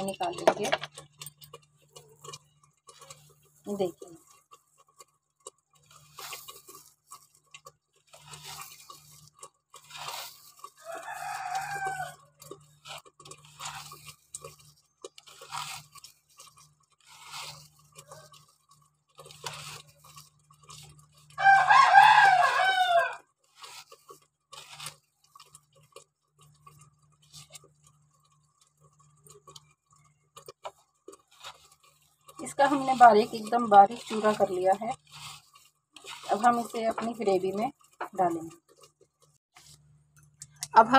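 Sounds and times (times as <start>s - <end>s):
dry leaves crackling being crushed: 0.0s - 0.9s, 5.8s - 25.8s, 30.5s - 38.7s
rooster crowing: 10.8s - 12.3s, 21.4s - 23.2s.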